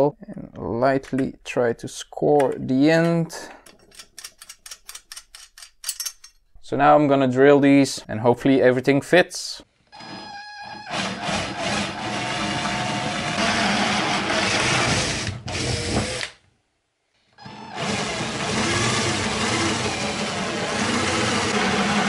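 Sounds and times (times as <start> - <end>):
cordless drill boring metal: 10.0 - 16.3, 17.4 - 22.0.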